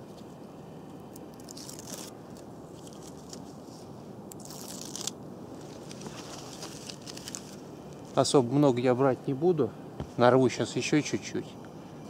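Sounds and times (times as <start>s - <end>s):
bark tearing off by hand: 1.1s - 3.5s, 4.3s - 7.6s.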